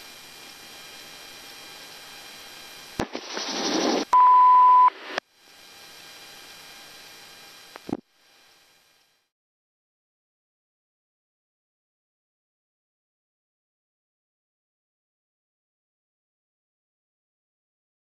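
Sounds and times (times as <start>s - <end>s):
radio hiss: 0.0s - 9.1s
radio static burst: 2.9s - 5.2s
radio click: 3.0s - 5.2s
loud high beep: 4.1s - 5.0s.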